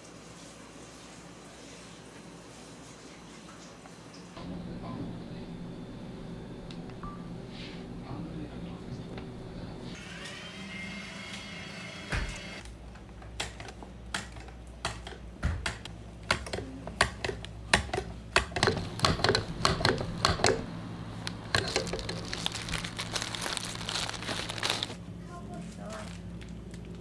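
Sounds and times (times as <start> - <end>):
low machine hum: 4.4 - 10.0, 15.8 - 27.0.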